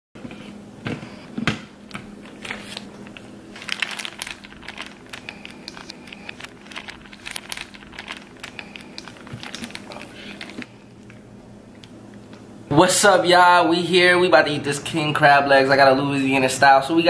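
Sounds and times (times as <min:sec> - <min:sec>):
faint steady hum: 0:00.2 - 0:17.0
crinkling and rustling: 0:02.2 - 0:11.2
small crackles and clicks: 0:02.7 - 0:11.2.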